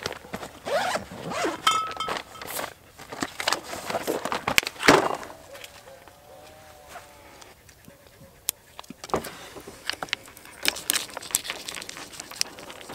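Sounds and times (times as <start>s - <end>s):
cooler bag rustling: 0.0s - 5.9s.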